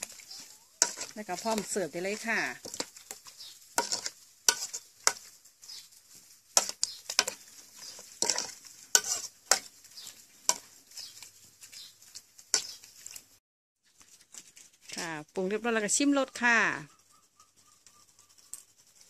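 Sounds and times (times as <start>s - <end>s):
metal ladle scraping pot: 0.0s - 5.3s, 6.5s - 11.3s.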